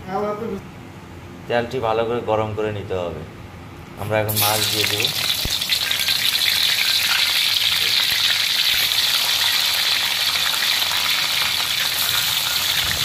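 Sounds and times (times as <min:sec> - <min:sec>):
fish frying in hot oil: 0:04.4 - 0:13.0.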